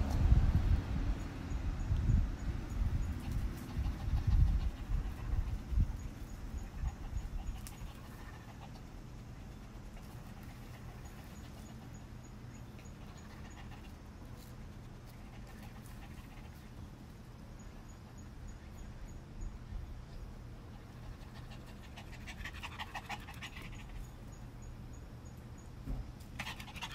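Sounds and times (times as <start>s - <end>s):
low background hum: 0.0s - 26.9s
small dog panting: 2.7s - 16.9s, 20.6s - 24.4s, 26.2s - 26.9s.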